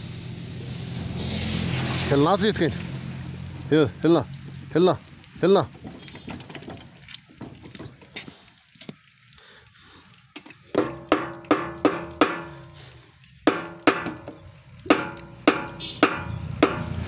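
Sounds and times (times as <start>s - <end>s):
plastic mallet striking metal: 10.7s - 12.7s, 13.5s - 17.0s.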